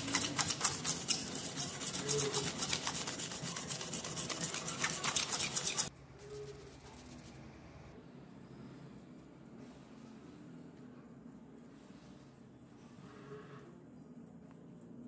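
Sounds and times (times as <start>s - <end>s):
sandpaper scratching metal blade: 0.0s - 5.9s.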